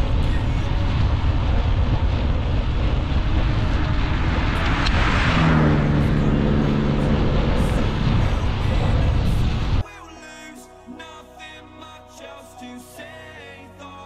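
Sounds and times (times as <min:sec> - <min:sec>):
wind rumble on microphone: 0:00.0 - 0:09.8
motor vehicle passing: 0:00.7 - 0:09.8.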